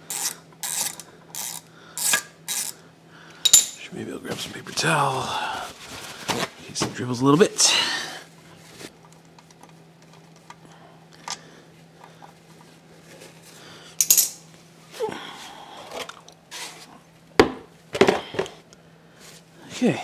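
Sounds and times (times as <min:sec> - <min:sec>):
metal tools clinking on concrete: 0:03.4 - 0:03.8, 0:14.0 - 0:14.4.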